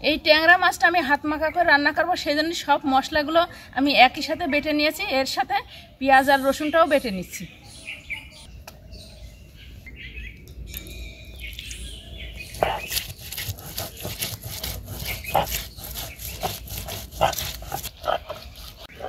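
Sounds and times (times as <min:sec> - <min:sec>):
stone grinding on stone: 0:12.5 - 0:19.0.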